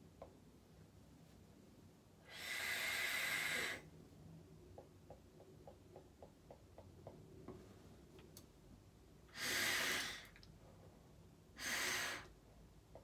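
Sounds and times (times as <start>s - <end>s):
hissing nasal inhalations: 2.2s - 3.9s, 9.3s - 10.4s, 11.6s - 12.4s.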